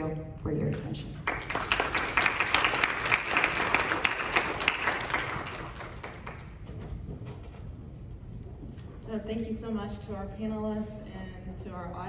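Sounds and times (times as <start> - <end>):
audience applauding: 1.2 - 6.8.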